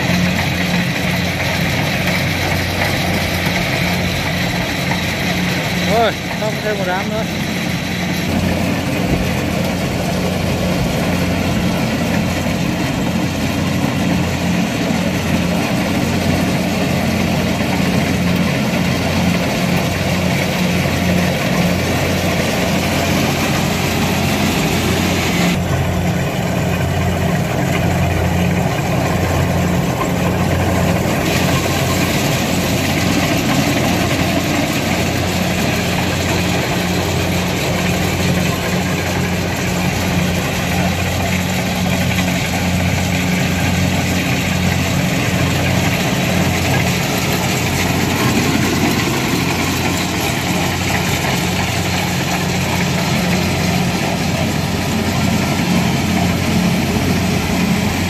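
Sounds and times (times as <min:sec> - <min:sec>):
diesel engine running under load: 0:00.0 - 0:58.0.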